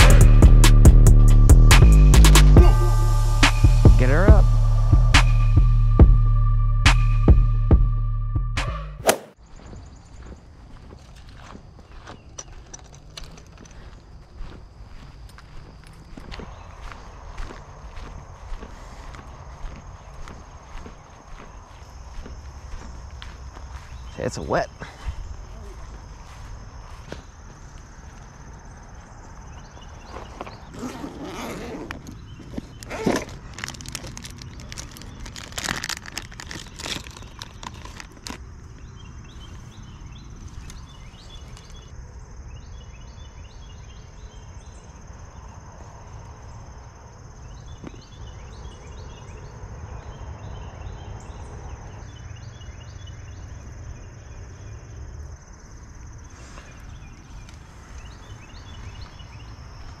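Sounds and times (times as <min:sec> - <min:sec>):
high insect drone: 0:00.0 - 0:06.5, 0:13.2 - 1:00.0
low rumble: 0:00.0 - 0:08.6
rustling and clattering handling noise: 0:31.9 - 0:38.6.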